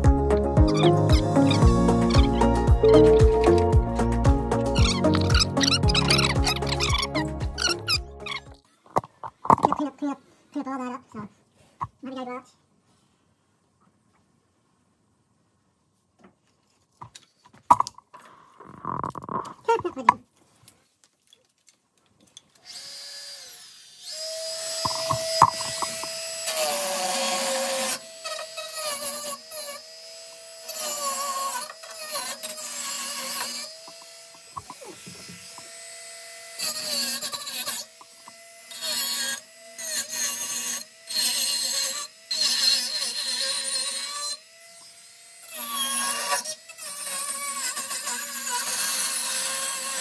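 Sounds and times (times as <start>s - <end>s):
rotary tool grinding metal: 0.7s - 9.8s, 22.6s - 50.0s
rotary tool whining: 4.7s - 9.7s, 22.5s - 50.0s.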